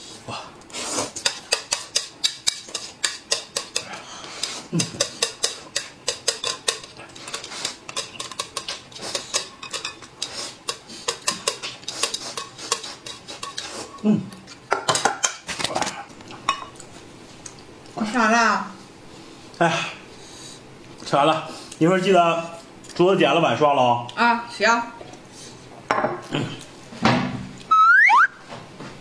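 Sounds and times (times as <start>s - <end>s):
chopsticks clicking on dishes: 1.2s - 13.7s.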